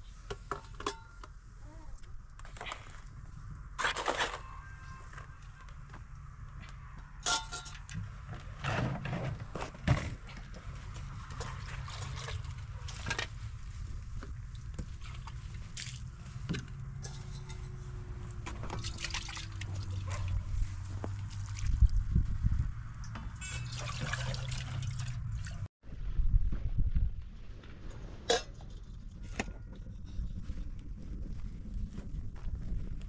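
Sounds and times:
pots and containers clinking: 0.5s - 1.3s, 7.2s - 8.0s, 16.9s - 20.3s
water splashing on stony ground: 10.9s - 13.2s, 14.2s - 16.2s, 18.4s - 22.0s, 23.5s - 25.7s.

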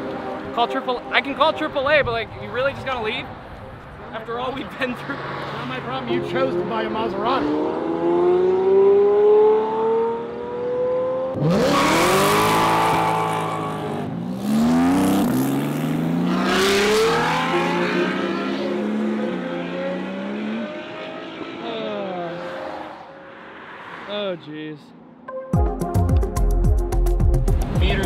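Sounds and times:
sports car engines accelerating: 2.9s - 23.5s.

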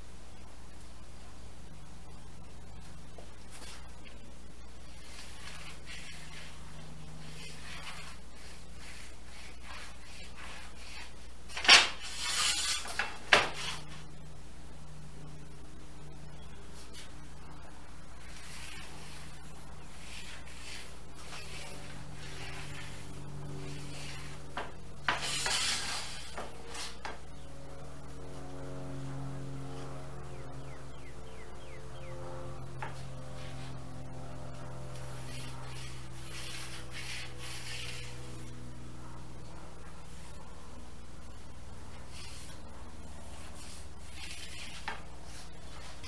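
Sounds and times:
straightedge scraping plywood: 7.2s - 13.9s, 23.7s - 27.2s.

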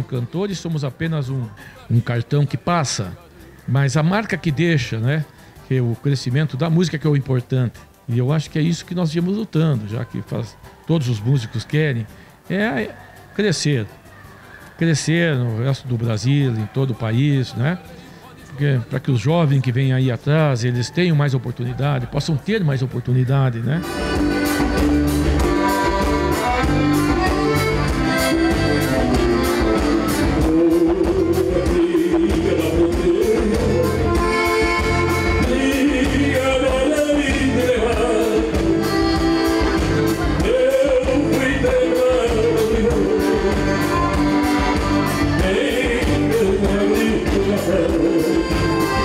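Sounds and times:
button accordion: 23.7s - 49.0s
steady bass beat: 23.8s - 49.0s
man singing: 30.1s - 49.0s.

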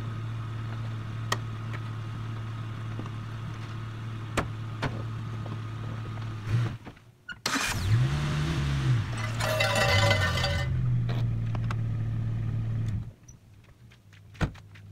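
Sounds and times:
tyres on gravel: 9.1s - 10.8s.

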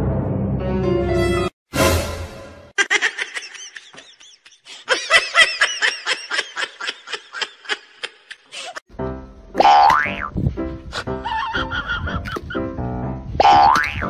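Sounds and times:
high-pitched giggling: 2.8s - 8.8s, 11.0s - 12.6s.

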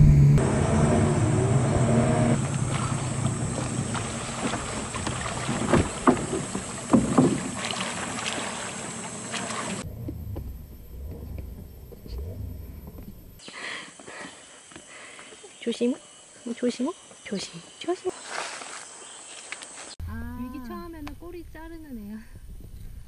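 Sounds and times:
quiet forest sound: 2.4s - 21.4s
wind noise on microphone: 20.9s - 23.0s.

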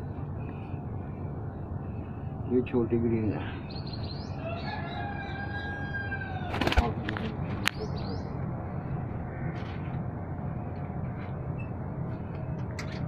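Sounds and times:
low hum: 0.0s - 13.0s
pigeon wings flapping: 6.5s - 7.0s.

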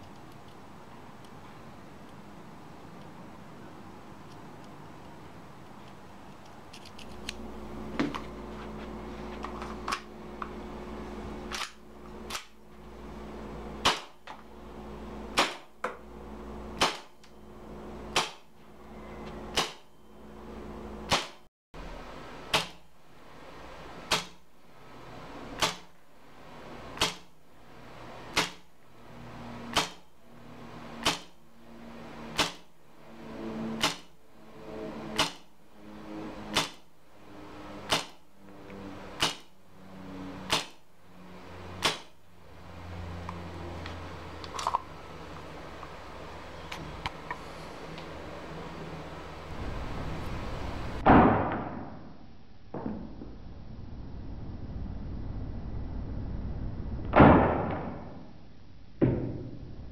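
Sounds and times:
airsoft pistol shots: 13.8s - 14.2s, 15.3s - 15.7s, 16.8s - 17.1s, 18.1s - 18.5s, 19.5s - 19.9s, 21.1s - 21.4s, 22.5s - 22.8s, 24.1s - 24.4s, 25.6s - 25.9s, 27.0s - 27.3s, 28.3s - 28.7s, 29.7s - 30.0s, 31.0s - 31.4s, 32.4s - 32.7s, 33.8s - 34.1s, 35.2s - 35.5s, 36.5s - 36.9s, 37.9s - 38.2s, 39.2s - 39.5s, 40.5s - 40.8s, 41.8s - 42.2s, 51.0s - 52.0s, 57.1s - 58.2s.

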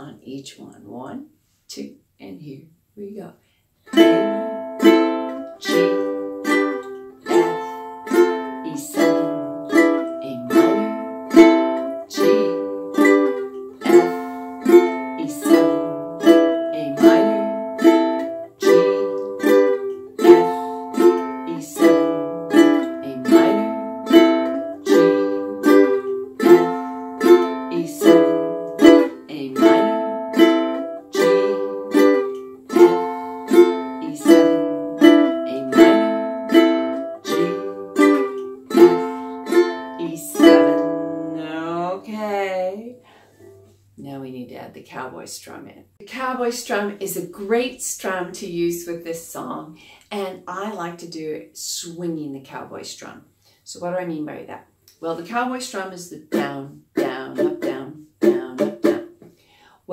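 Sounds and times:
ukulele strumming: 3.9s - 42.0s, 55.2s - 59.4s.

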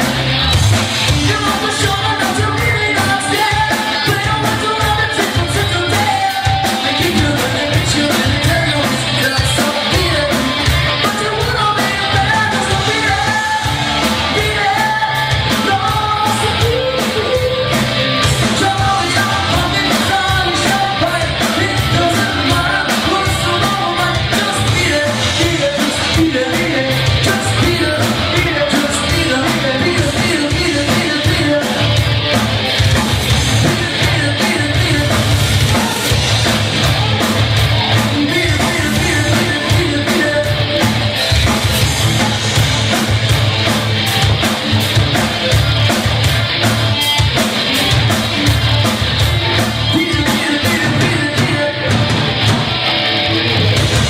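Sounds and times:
bass guitar: 0.0s - 54.0s
drum kit: 0.0s - 54.0s
electric guitar: 0.0s - 54.0s
person singing: 1.0s - 32.0s, 33.4s - 41.1s, 49.3s - 52.6s.

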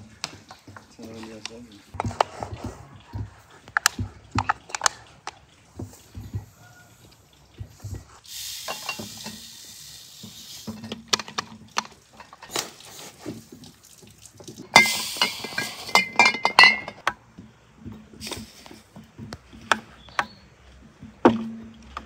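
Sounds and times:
glass clinking and knocking: 8.7s - 9.4s, 14.7s - 17.2s.

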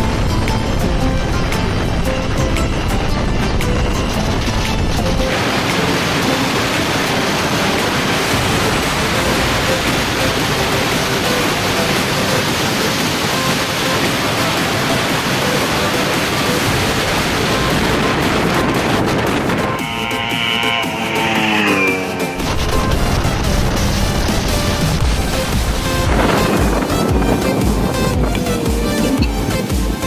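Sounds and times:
wind rushing over microphone: 0.0s - 30.0s.

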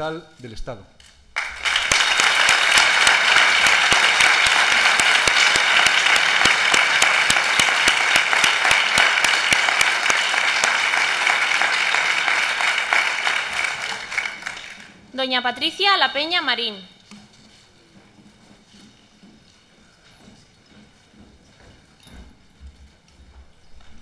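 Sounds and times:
audience applauding: 1.4s - 15.0s.

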